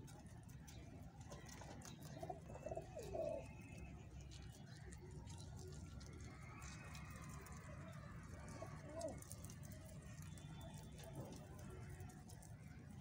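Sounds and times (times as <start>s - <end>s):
pigeon cooing: 2.1s - 3.5s, 8.7s - 9.3s.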